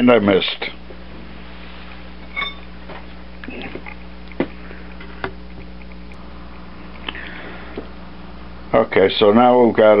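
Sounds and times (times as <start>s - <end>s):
steady low hum: 0.0s - 10.0s
short metal ringing ping: 2.3s - 2.7s.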